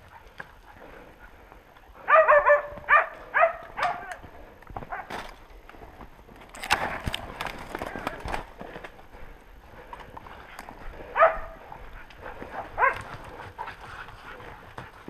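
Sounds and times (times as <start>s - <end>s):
dogs barking: 0.0s - 4.2s, 4.8s - 5.2s, 10.6s - 15.0s
footsteps snapping twigs: 3.6s - 9.0s.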